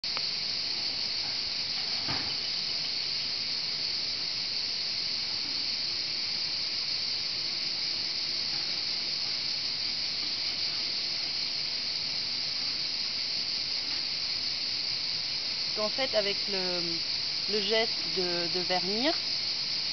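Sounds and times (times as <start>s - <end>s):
high-pitched insect chorus: 0.0s - 19.9s.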